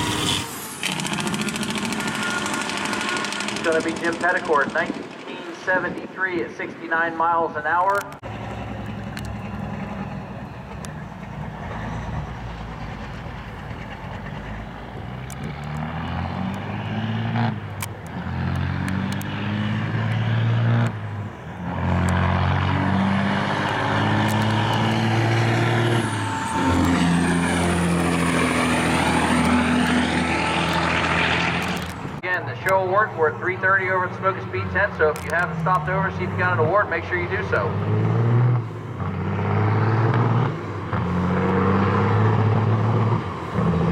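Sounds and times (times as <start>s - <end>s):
truck engine accelerating with gear shifts: 0.0s - 6.6s, 7.7s - 43.9s
high whine: 0.0s - 17.0s, 20.8s - 37.5s.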